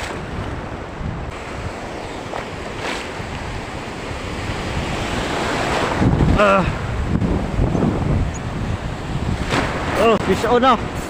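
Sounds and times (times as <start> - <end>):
sea waves: 0.0 - 11.0
wind buffeting microphone: 0.0 - 11.0.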